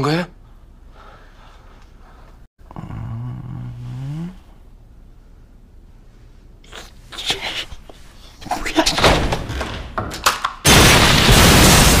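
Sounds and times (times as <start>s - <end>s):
loud bomb explosion: 10.7s - 12.0s.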